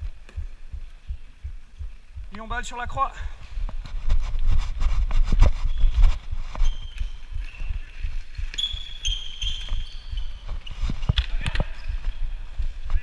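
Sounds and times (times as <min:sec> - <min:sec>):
shoes squeaking on floor: 0:05.3 - 0:12.2.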